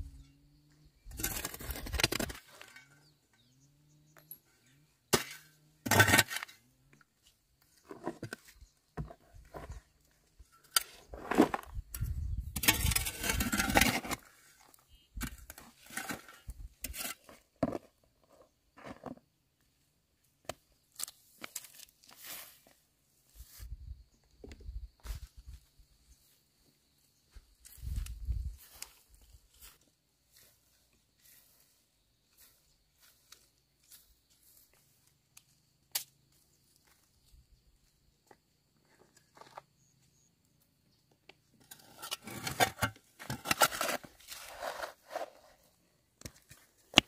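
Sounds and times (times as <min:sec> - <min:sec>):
crunching and scraping: 0:01.0 - 0:03.5, 0:05.0 - 0:19.3, 0:20.4 - 0:23.8, 0:27.3 - 0:37.4, 0:41.3 - 0:47.0.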